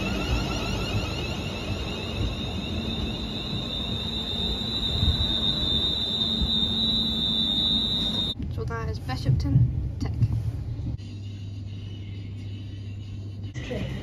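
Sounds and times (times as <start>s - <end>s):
rapid rising chirps: 0.0s - 8.4s
electric train whine and hum: 0.0s - 8.6s.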